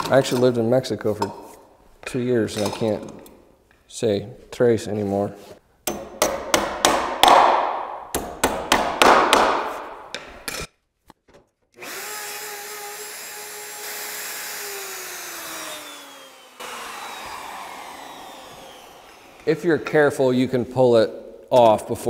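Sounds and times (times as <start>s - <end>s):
router whining: 11.8s - 19.6s.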